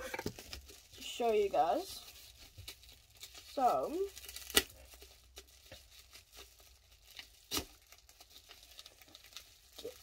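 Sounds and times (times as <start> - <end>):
bubble wrap crackles: 0.0 - 10.0
bubble wrap crinkling: 0.0 - 10.0.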